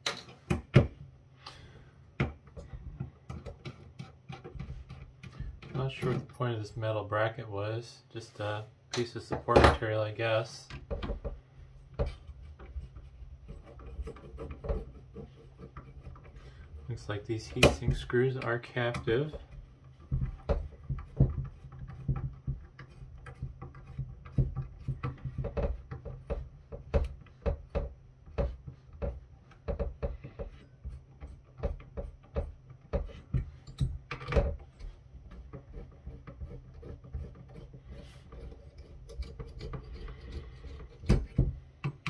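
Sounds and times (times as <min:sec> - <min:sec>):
screwdriver clicks and scrapes: 0:30.3 - 0:42.0.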